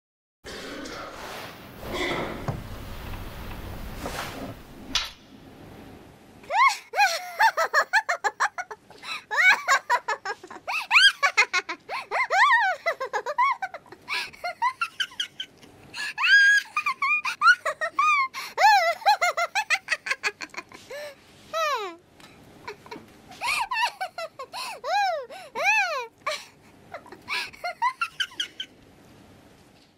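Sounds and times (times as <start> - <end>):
high-pitched giggling laughter: 6.5 - 15.6, 16.2 - 20.9, 22.6 - 28.7.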